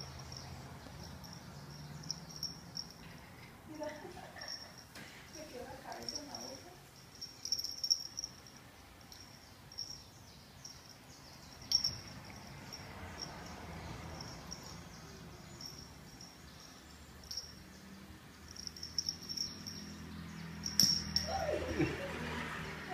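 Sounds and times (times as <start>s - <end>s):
insect chirping trills: 5.9s - 21.5s.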